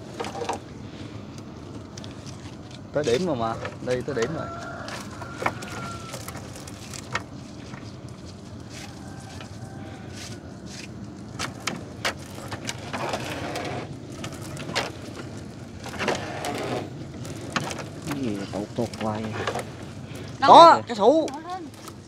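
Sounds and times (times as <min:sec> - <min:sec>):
steady low hum: 0:00.0 - 0:22.0
wet net rustling and splashing: 0:03.8 - 0:20.5.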